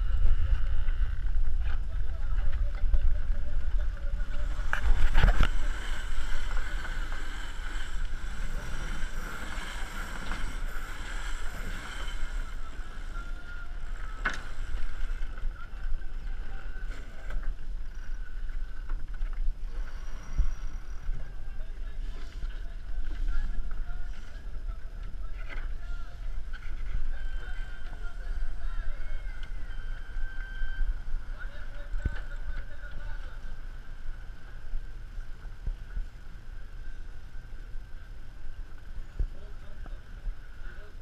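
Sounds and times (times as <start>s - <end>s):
steady hum: 0.0s - 41.0s
wind buffeting the microphone: 0.0s - 41.0s
water rushing past hulls: 3.2s - 16.8s.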